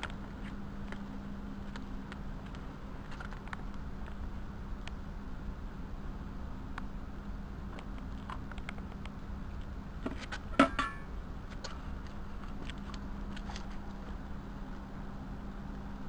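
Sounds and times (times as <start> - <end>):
steady low hum: 0.0 - 16.0
ringing metal clank: 10.6 - 11.1.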